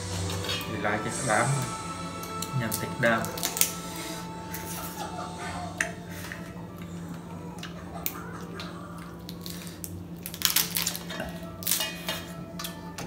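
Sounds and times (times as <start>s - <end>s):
low steady hum: 0.0s - 13.0s
crab shell cracking: 2.2s - 3.8s, 7.6s - 11.9s.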